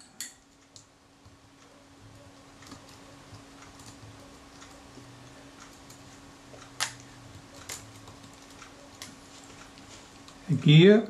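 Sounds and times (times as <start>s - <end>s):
faint hum: 0.0s - 11.0s.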